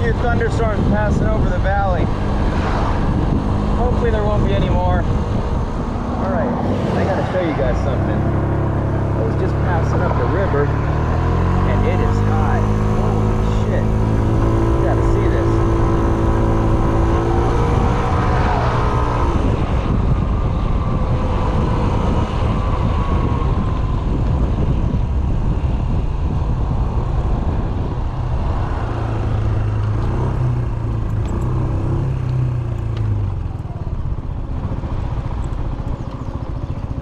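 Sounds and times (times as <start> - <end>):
wind on microphone: 0.0 - 37.0
scooter engine running: 27.3 - 37.0.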